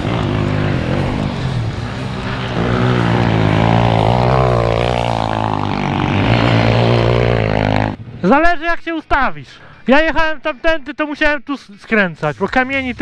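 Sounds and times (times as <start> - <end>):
motorbike engine revving: 0.0 - 8.0.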